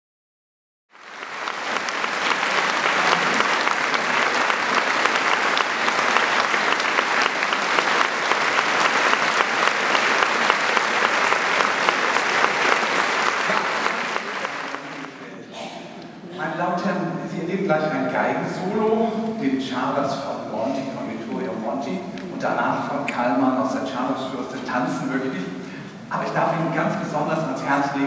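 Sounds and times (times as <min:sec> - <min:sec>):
audience applauding: 0:00.9 - 0:15.4.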